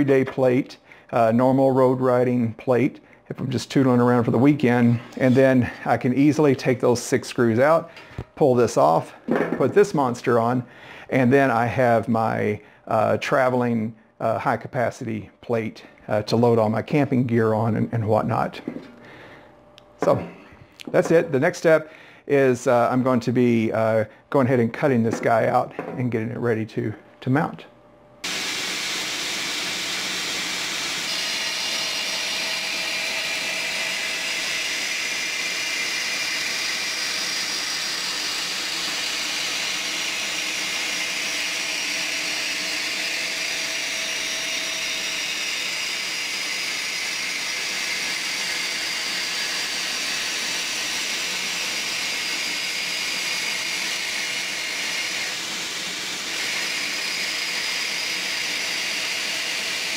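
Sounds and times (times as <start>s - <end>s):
band saw cutting metal: 4.9s - 6.5s, 28.2s - 59.9s.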